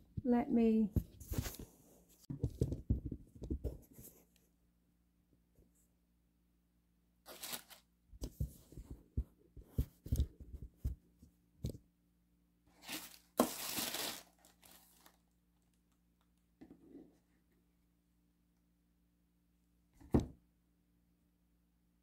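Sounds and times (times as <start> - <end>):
paper rustling: 7.3 - 8.8, 12.7 - 15.2.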